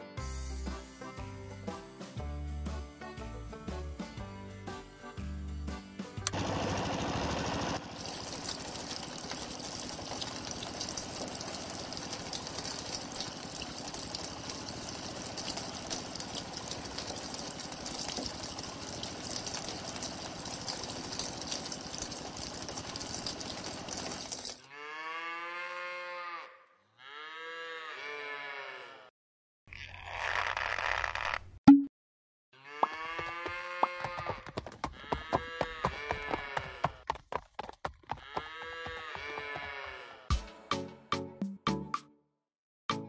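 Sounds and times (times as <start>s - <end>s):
cow mooing: 24.6s - 29.1s, 32.6s - 37.0s, 38.2s - 40.3s.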